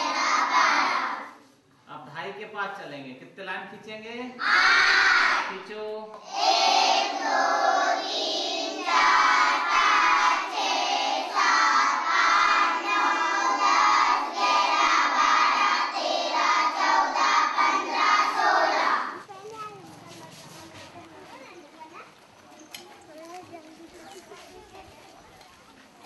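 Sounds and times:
children chanting together: 0.0s - 1.4s, 4.4s - 5.6s, 6.2s - 19.2s.

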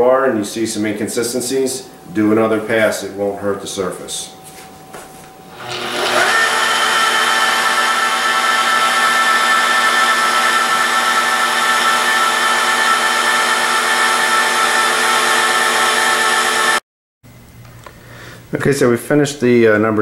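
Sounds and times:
electric polisher motor whine: 5.5s - 16.8s.

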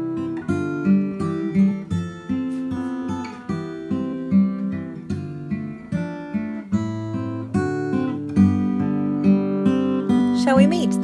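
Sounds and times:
acoustic guitar music: 0.0s - 11.0s.

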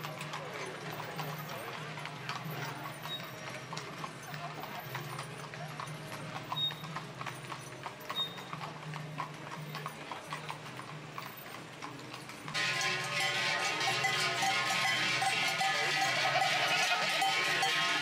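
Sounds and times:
hooves clip-clopping on wet road: 0.0s - 18.0s
livestock bells ringing: 12.2s - 18.0s.

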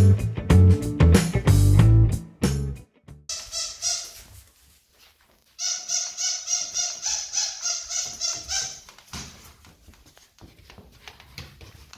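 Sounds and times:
footsteps on tile floor: 3.3s - 11.9s
squeaky shoes squeaking: 3.3s - 11.9s.

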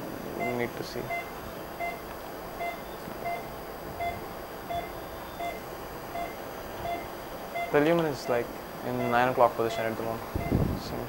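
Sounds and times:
faint room hiss: 0.0s - 11.0s
patient monitor beeping: 0.3s - 10.8s.

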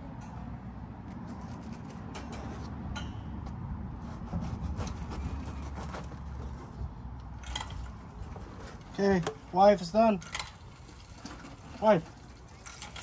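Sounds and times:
knife sawing through crusty bread: 4.0s - 6.8s.

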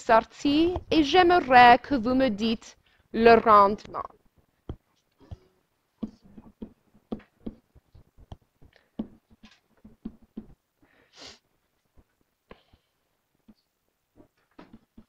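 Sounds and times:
stylus tapping on tablet screen: 3.8s - 10.6s, 14.2s - 15.0s.

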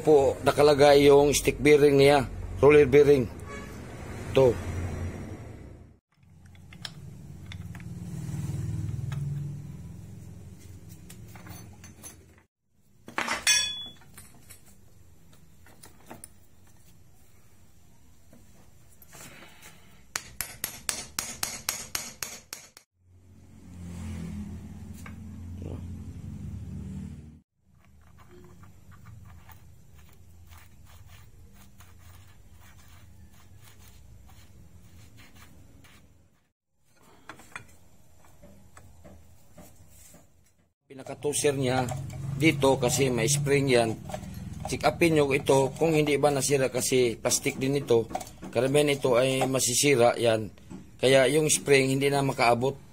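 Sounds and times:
steel parts clinking: 13.2s - 14.7s
metal parts clicking and scraping: 43.8s - 45.0s.

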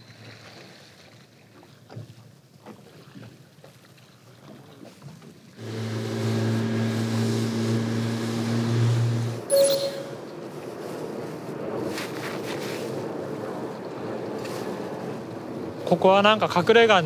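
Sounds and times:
boat engine running: 5.6s - 9.4s
rush of wind and water: 10.3s - 17.0s.

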